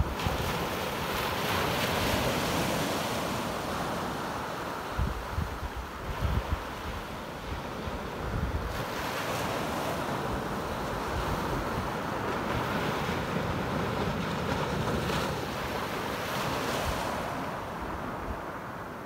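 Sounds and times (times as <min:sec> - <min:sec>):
small waves on pebble beach: 0:00.0 - 0:05.0
wind blowing on microphone: 0:00.0 - 0:19.0.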